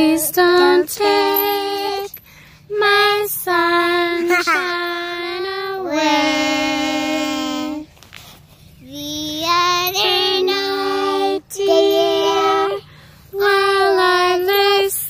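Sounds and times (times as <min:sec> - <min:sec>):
toddler singing: 0:02.8 - 0:07.9, 0:08.8 - 0:12.8.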